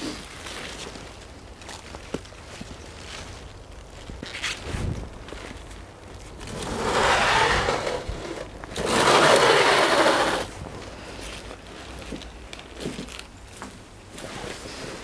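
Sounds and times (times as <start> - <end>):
sliding door scraping on metal track: 6.5 - 10.5.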